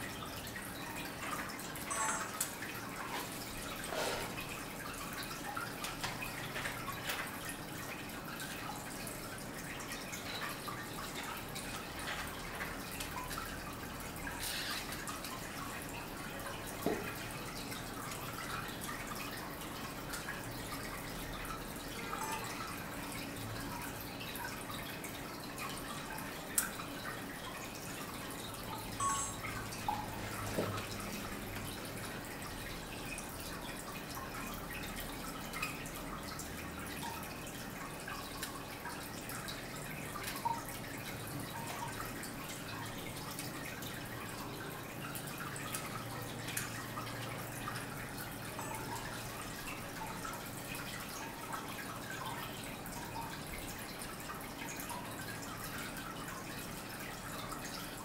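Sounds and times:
water drips: 0.0s - 58.0s
water trickling: 0.0s - 58.0s.

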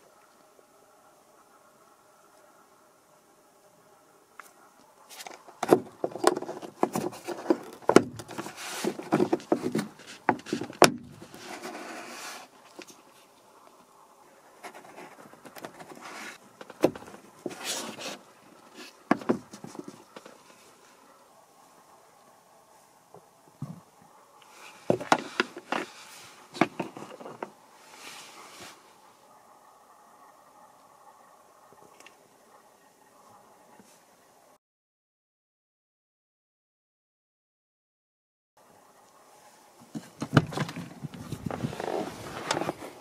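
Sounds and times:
rustling: 4.4s - 29.4s, 39.4s - 43.0s.

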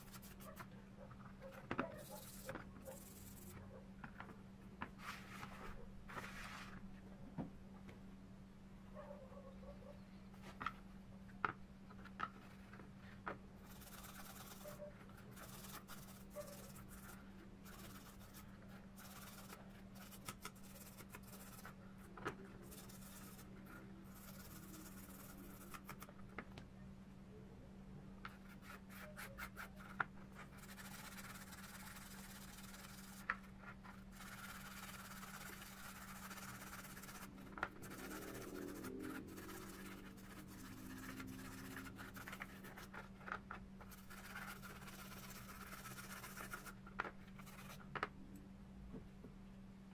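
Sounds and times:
steady low hum: 0.0s - 49.9s
toothbrush scrubbing metal parts: 13.6s - 21.8s, 22.6s - 26.1s, 33.9s - 43.1s, 43.8s - 46.8s.

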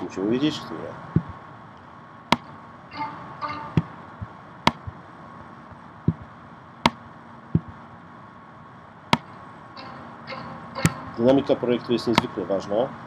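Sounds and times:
soft taps: 1.2s - 1.4s, 3.8s - 5.0s, 6.1s - 6.3s, 7.6s - 7.8s.

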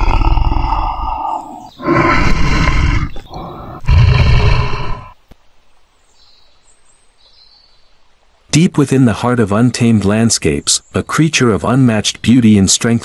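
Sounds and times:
tiger roaring: 0.0s - 5.2s.

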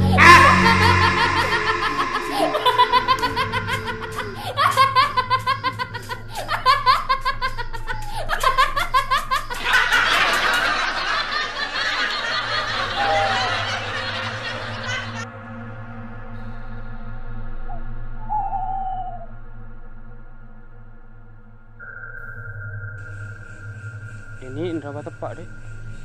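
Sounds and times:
high-pitched cackling laughter: 0.0s - 15.2s.

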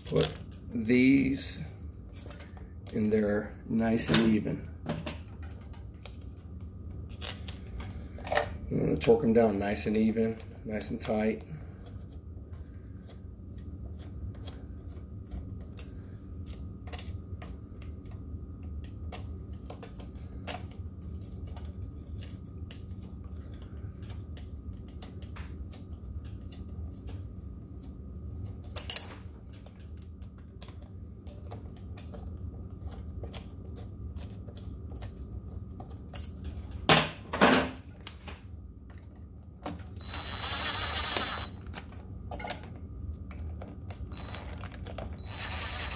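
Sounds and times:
cordless drill running: 40.0s - 41.6s, 44.1s - 44.5s, 45.2s - 45.9s.

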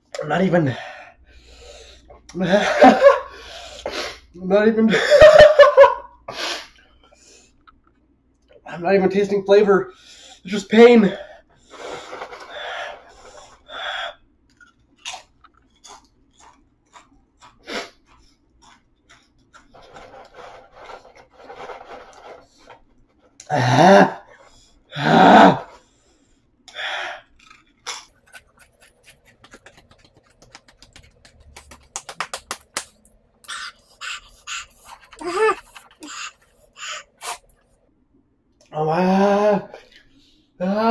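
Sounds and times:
man groaning cries: 23.5s - 24.2s, 25.0s - 25.7s, 38.8s - 39.8s, 40.6s - 40.9s
small crunching clicks: 27.3s - 33.2s.

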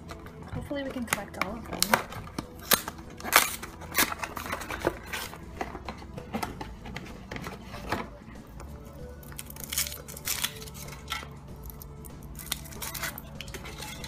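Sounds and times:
foil crinkling: 1.8s - 5.9s, 9.2s - 14.0s.

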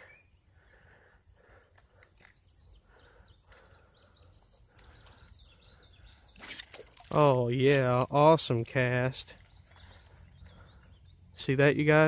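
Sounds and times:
faint high bird chirps: 0.0s - 0.8s, 2.0s - 7.2s
faint clicks: 1.5s - 2.4s, 3.4s - 3.8s.

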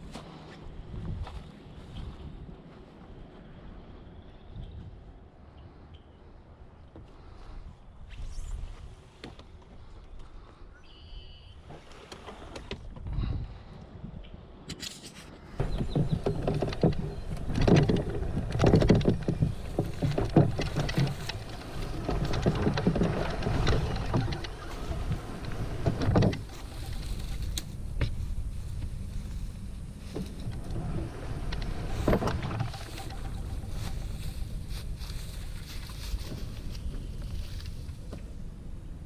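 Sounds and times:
wind rumble on microphone: 0.0s - 10.7s, 12.4s - 14.7s, 15.3s - 39.0s
canoe hull scraping over grass: 15.5s - 38.1s
dry grass crackling and rustling: 15.6s - 38.5s.

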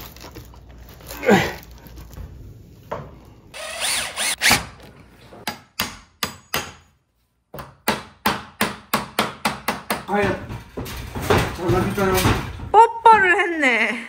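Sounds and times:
cordless drill whirring: 3.6s - 4.5s.

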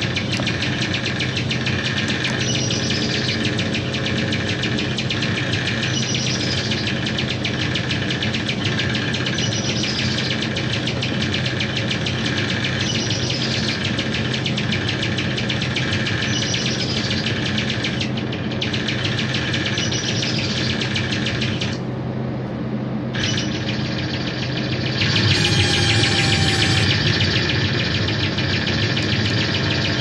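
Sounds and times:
buzzing electronic drone: 0.0s - 21.9s, 23.0s - 30.0s
bright electronic chirping: 23.2s - 30.0s.

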